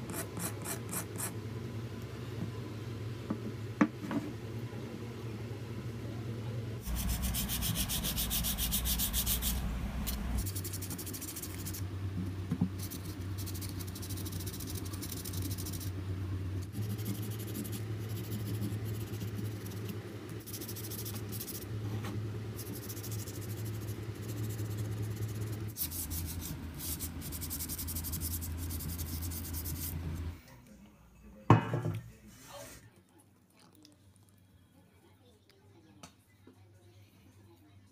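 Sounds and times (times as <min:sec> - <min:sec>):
low steady hum: 0:00.0 - 0:32.4
sandpaper scratching on stone: 0:06.8 - 0:11.8, 0:25.8 - 0:30.0.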